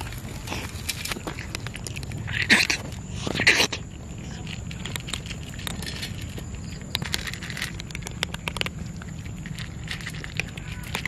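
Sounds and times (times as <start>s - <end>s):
kittens crunching dry kibble: 0.0s - 11.0s
low background rumble: 0.0s - 11.0s.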